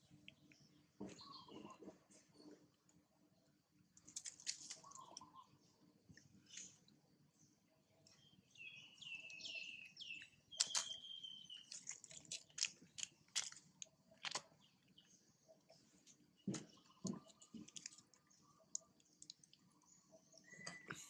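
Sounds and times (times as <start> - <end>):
faint bird chirps: 0.0 - 2.6, 4.6 - 12.0, 14.5 - 21.0.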